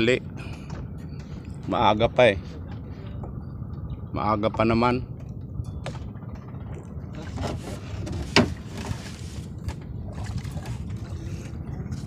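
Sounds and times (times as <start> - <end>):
low rumble: 0.0 - 12.0
water swishing: 6.6 - 12.0.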